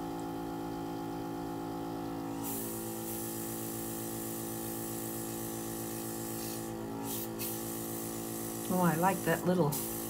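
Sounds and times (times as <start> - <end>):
airbrush hissing: 2.4 - 10.0.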